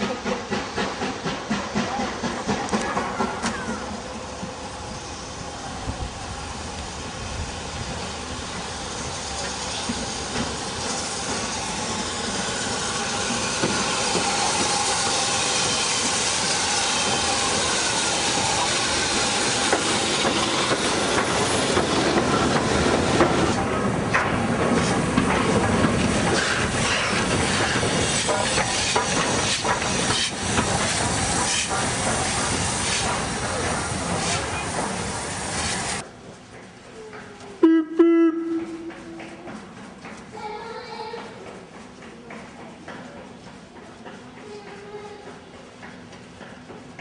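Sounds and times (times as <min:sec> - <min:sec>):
steam hiss: 0:00.0 - 0:36.0
steam train passing: 0:00.0 - 0:47.0
wheels clicking over rail joints: 0:17.0 - 0:35.1.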